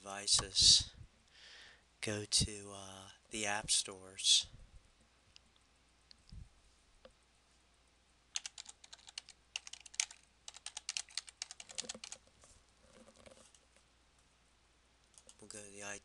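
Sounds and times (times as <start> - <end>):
rapid computer keyboard typing: 8.4 - 12.2.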